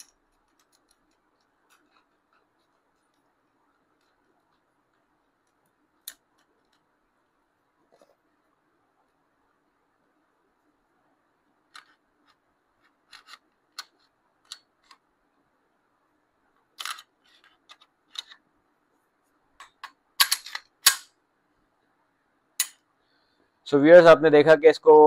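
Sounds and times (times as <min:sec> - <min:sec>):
pistol metallic clicks and snaps: 0:19.6 - 0:21.1.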